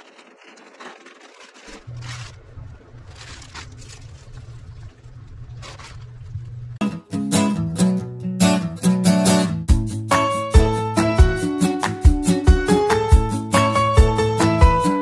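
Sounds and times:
garlic bulbs rustling and scraping: 0.0 - 4.8
plastic bag crinkling: 0.0 - 4.9.

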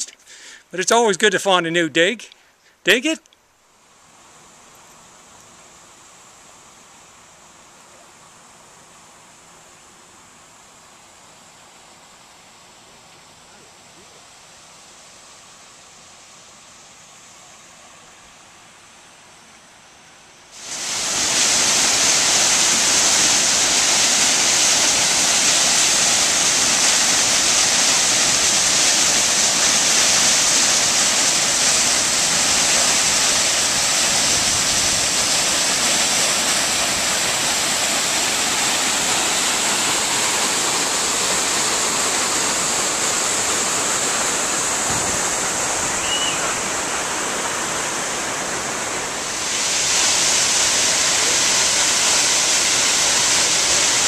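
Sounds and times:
waterfall rushing: 20.5 - 54.0.

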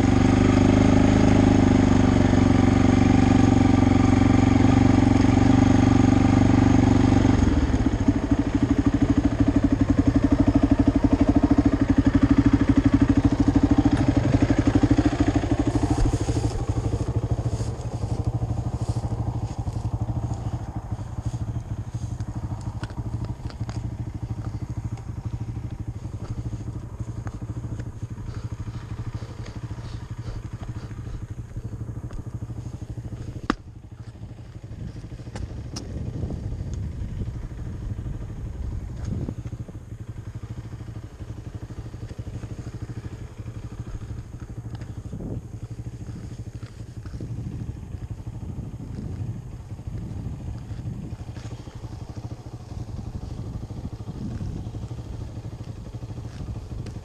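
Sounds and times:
quad engine running: 0.0 - 57.0.

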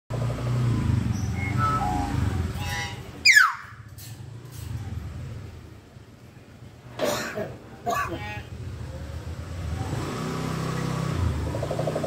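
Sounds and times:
vehicle engine running: 0.1 - 3.2, 8.5 - 12.0.

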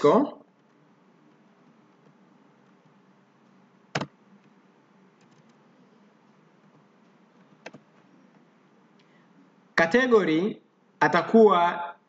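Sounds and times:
faint background hum: 0.0 - 12.0
keyboard key clicks: 3.9 - 4.1.

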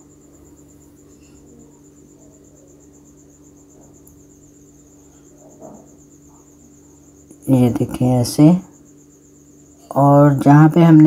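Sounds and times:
low steady hum: 0.0 - 11.0.

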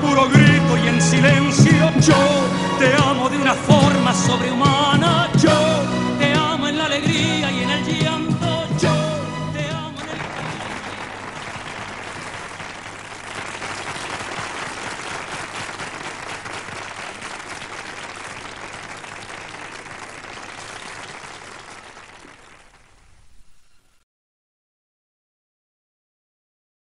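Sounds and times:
singing and band ending: 0.0 - 16.3
audience applauding: 9.9 - 23.7.

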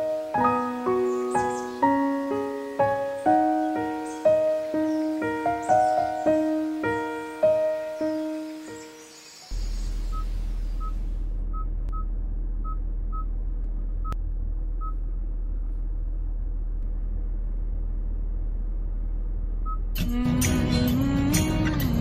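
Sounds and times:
car engine idling: 9.6 - 22.0.

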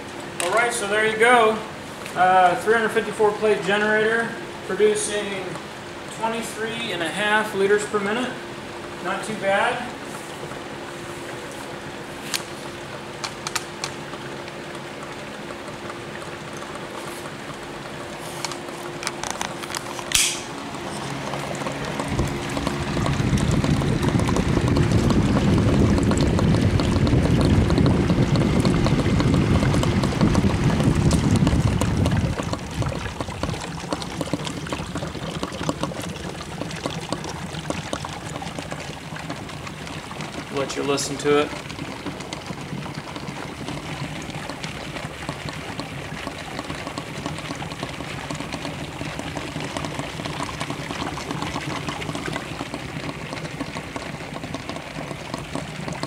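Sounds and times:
gas bubbling through water: 5.4 - 56.0.

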